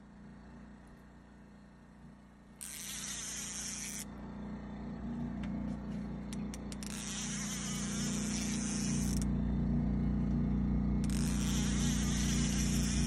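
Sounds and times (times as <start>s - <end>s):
fishing reel drag buzzing: 2.6s - 4.1s, 6.5s - 9.5s, 10.9s - 13.0s
sharp reel ticks: 2.6s - 4.1s, 6.3s - 9.3s, 11.0s - 13.0s.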